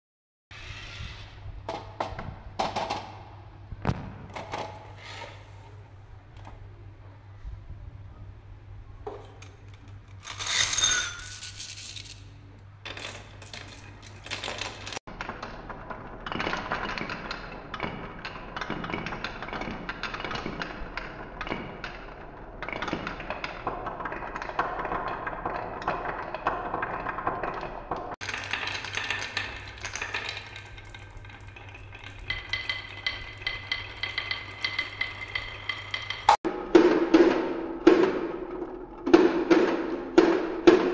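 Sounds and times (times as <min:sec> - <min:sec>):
marbles rolling down wooden tracks: 0:12.9 - 0:20.8, 0:21.4 - 0:36.4.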